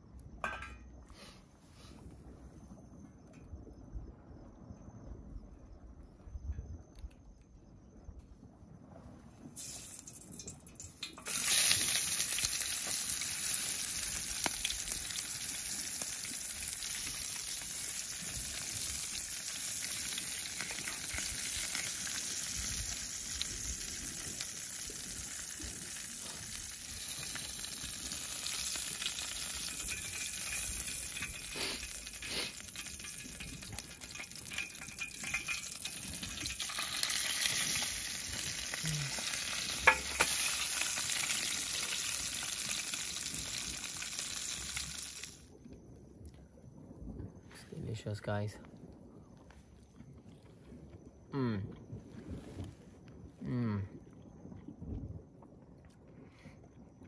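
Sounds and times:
fish sizzling in oil: 9.6 - 45.4
oil popping: 9.6 - 45.4.

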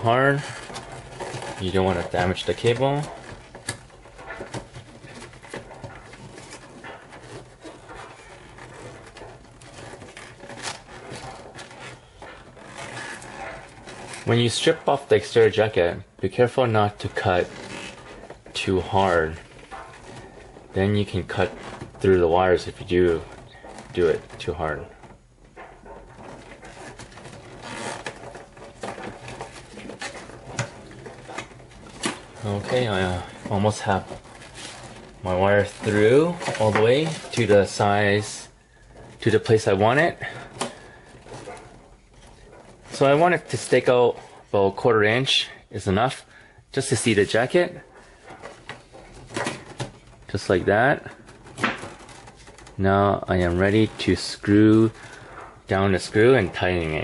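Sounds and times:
cable rubbing against connector: 0.0 - 57.0.

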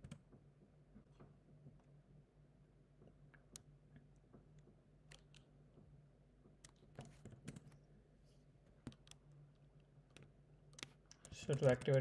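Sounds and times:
computer keyboard keystrokes: 6.7 - 7.8, 8.8 - 9.3, 10.1 - 12.0.

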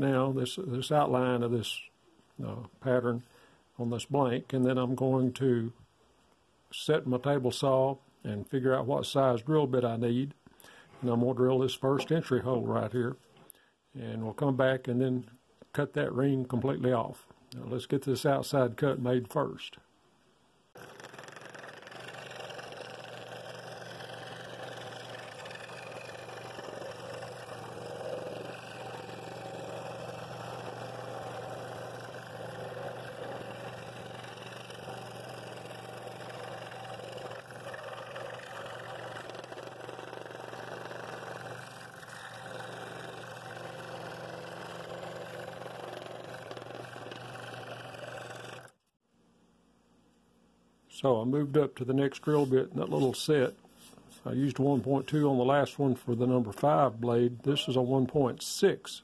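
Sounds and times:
scroll saw cutting wood: 20.8 - 48.8.

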